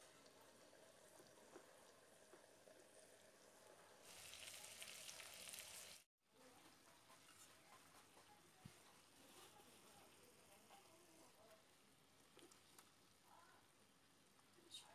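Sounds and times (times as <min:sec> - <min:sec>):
meat sizzling in a frying pan: 0:04.0 - 0:06.1.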